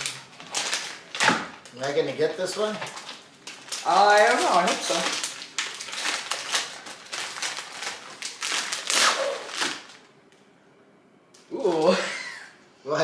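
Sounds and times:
plastic wrapper crinkling: 0.0s - 10.1s.

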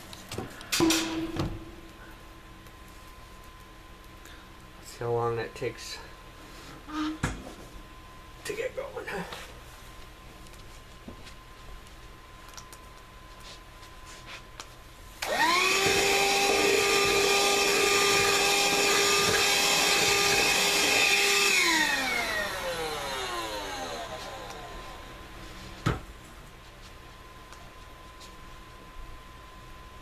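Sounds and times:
electric blower whining: 15.2s - 25.3s.

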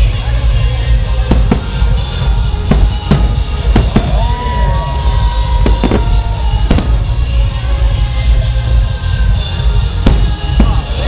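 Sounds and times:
music: 0.0s - 11.0s
low rumble: 0.4s - 9.3s
fireworks bangs: 0.8s - 8.1s, 9.5s - 11.0s.

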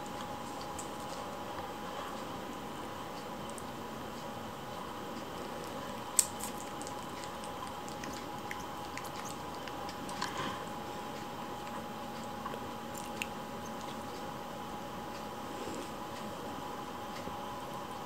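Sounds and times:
kittens gnawing with wet clicks: 5.0s - 14.3s.

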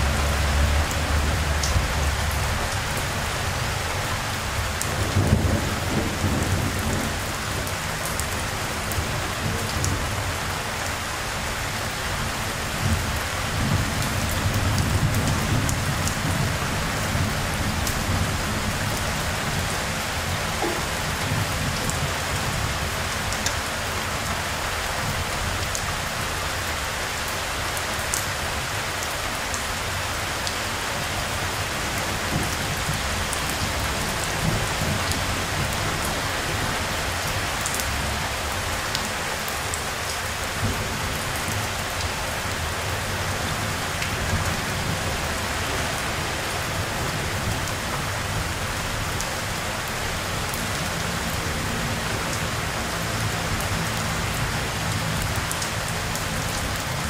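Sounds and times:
rain pouring on hard surfaces: 0.0s - 57.0s.

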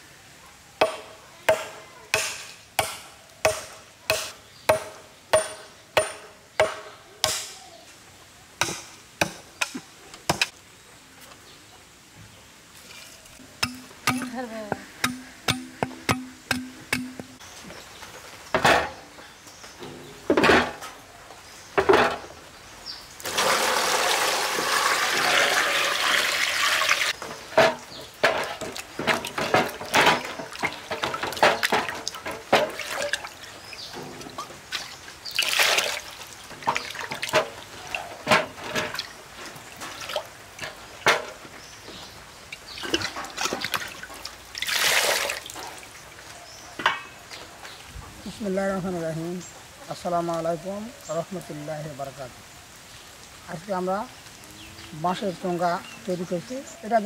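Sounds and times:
water pouring and splashing: 23.2s - 46.3s
knocks and clatter: 27.2s - 32.8s.

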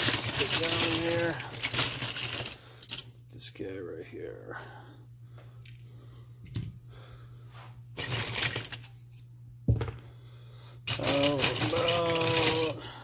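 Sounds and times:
metal toy cars clattering: 10.9s - 12.8s.

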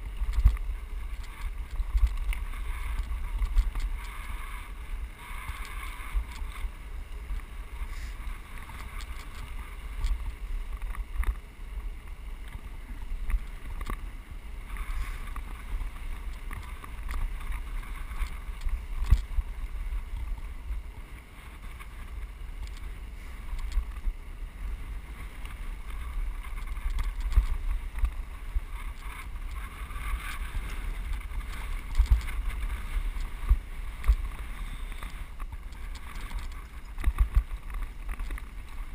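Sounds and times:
tyres on gravel: 0.0s - 38.9s
wind rumbling on microphone: 0.0s - 38.9s
bike knocks and rattles: 25.5s - 38.9s.

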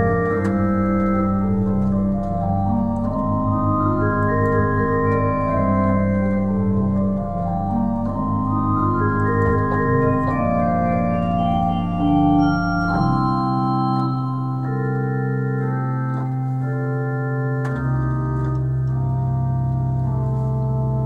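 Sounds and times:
deep bass organ note: 0.0s - 16.0s
pipe organ playing slow chords: 0.0s - 21.0s.

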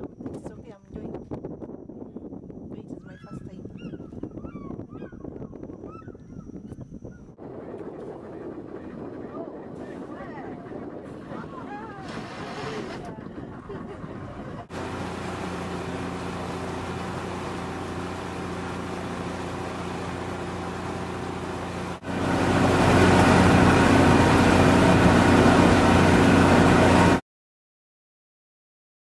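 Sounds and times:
boat motor running: 0.0s - 27.2s.

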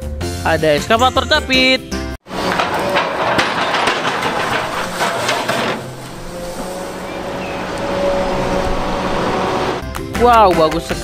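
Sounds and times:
excavator running with whine: 2.3s - 9.8s.

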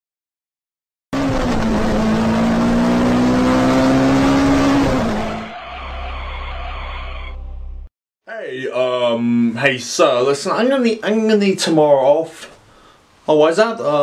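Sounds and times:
car engine revving high: 1.2s - 6.2s.

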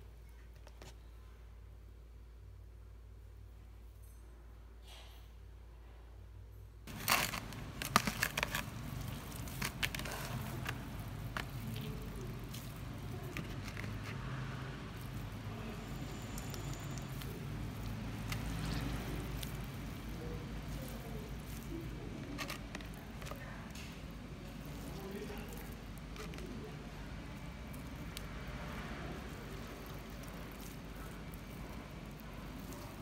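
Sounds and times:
wet bread squishing: 6.9s - 33.0s.

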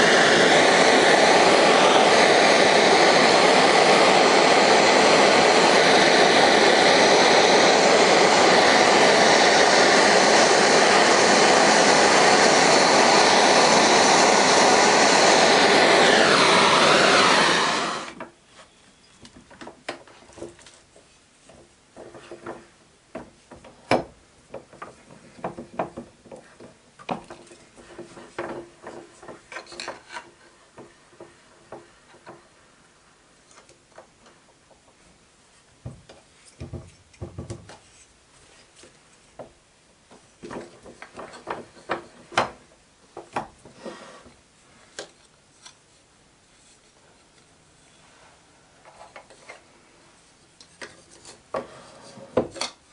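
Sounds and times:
blowtorch flame roaring: 0.0s - 18.2s.

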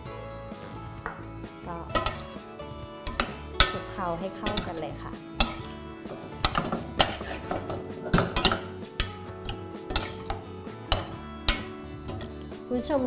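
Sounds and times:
background music: 0.0s - 13.0s
metal spoon clanking in saucepan: 1.9s - 2.4s, 3.0s - 12.4s.

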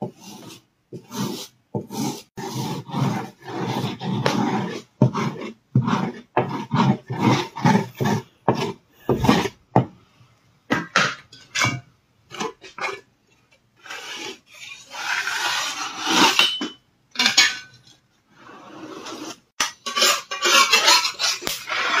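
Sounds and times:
rubbing strokes on metal pan: 0.0s - 9.6s, 18.5s - 22.0s
pan scraping and clatter: 16.0s - 22.0s.

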